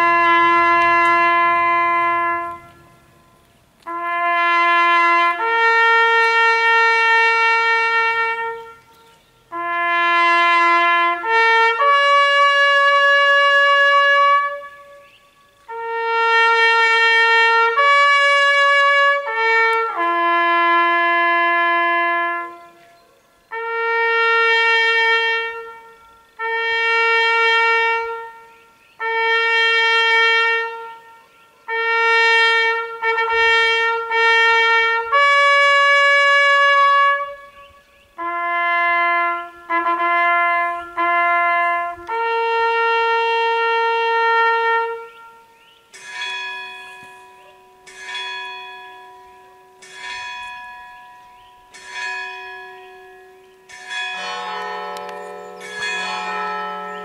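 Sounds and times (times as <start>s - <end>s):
solo trumpet playing: 0.0s - 57.0s
church bell tolling: 45.9s - 57.0s.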